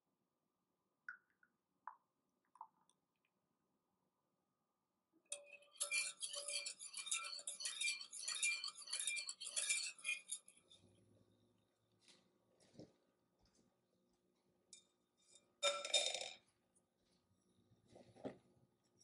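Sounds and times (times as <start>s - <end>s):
whisk clinking against glass bowl: 5.3s - 10.6s.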